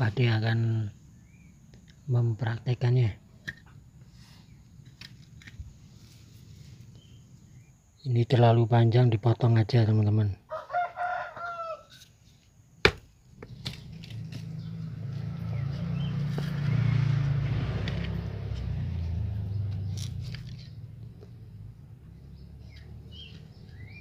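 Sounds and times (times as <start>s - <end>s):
passing vehicle rumble: 13.4s - 24.0s.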